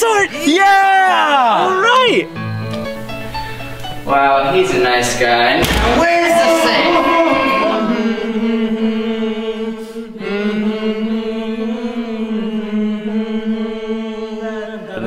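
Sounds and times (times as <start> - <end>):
chanted vocal note: 6.4 - 15.0.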